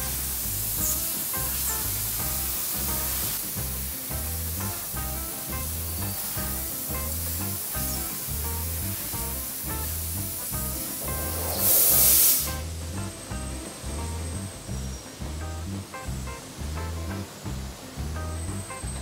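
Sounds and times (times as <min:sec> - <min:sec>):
laser cutter hissing: 0:00.0 - 0:03.6, 0:05.7 - 0:12.6
background music with beat: 0:00.0 - 0:19.0.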